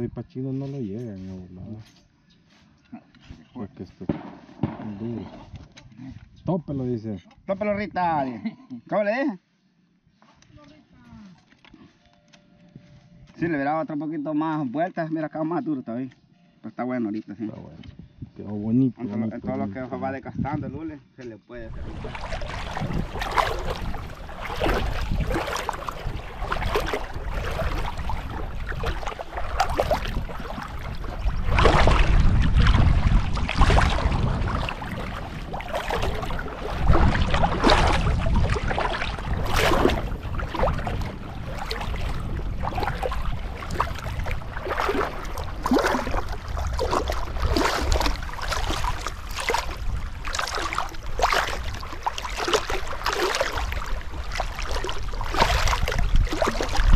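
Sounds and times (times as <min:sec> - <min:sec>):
river water sloshing and splashing: 0:21.6 - 0:56.9.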